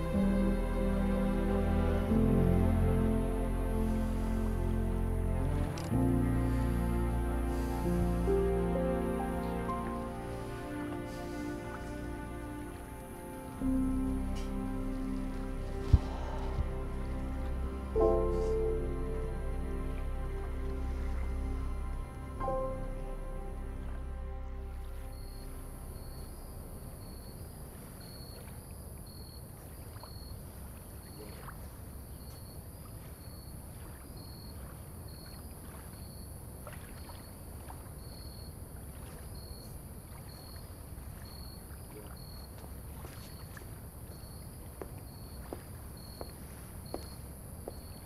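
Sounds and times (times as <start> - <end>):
low rumble: 0.0 - 27.6.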